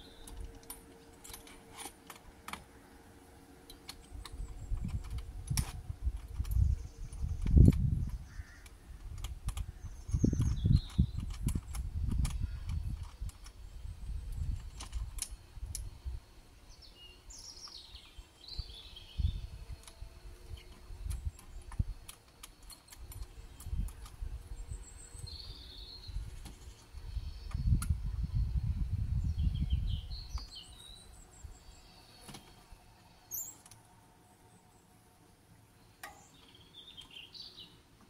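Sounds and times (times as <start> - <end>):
birds chirping: 0.0 - 1.7, 6.2 - 38.0
wind gusts on microphone: 4.2 - 16.3, 18.5 - 22.1, 23.0 - 31.7.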